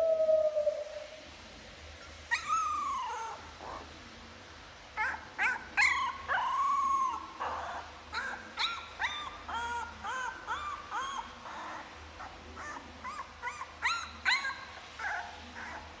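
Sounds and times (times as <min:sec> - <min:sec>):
puppy whining: 0:02.0 - 0:03.9, 0:05.0 - 0:16.0
puppy yelping: 0:02.0 - 0:03.9, 0:05.0 - 0:15.9.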